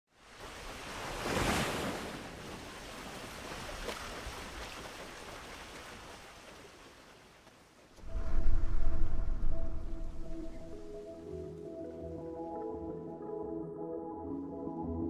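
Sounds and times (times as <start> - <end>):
rush of noise: 8.0 - 10.8.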